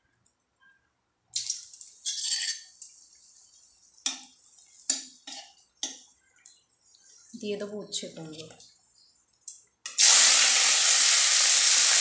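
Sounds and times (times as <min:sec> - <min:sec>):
chillies sizzling in hot oil: 0:01.4 - 0:08.7, 0:09.8 - 0:12.0.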